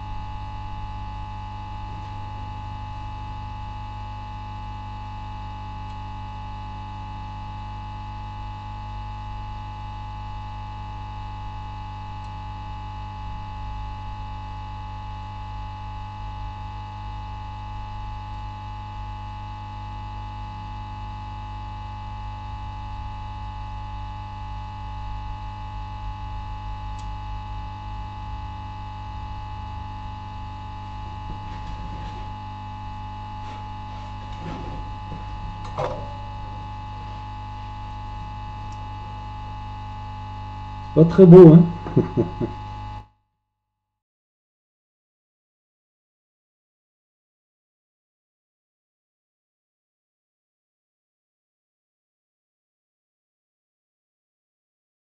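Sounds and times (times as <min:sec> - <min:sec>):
low electrical hum: 0:00.0 - 0:42.9
high electrical whine: 0:22.2 - 0:42.5.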